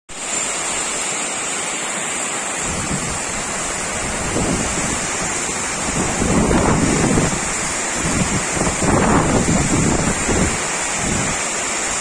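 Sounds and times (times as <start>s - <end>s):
heavy rain pouring: 0.1s - 12.0s
wind buffeting microphone: 2.6s - 12.0s.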